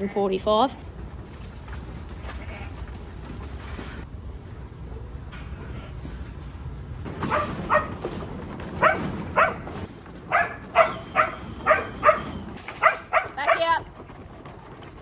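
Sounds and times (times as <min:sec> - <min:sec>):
dog barking sharply: 0:07.2 - 0:08.0, 0:08.8 - 0:09.7, 0:10.3 - 0:13.7.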